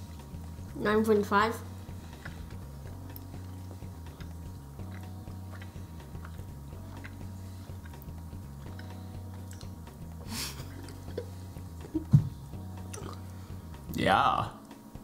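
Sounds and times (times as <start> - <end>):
quiet background music: 0.0 - 15.0
wet chewing: 1.9 - 11.9, 12.8 - 13.2.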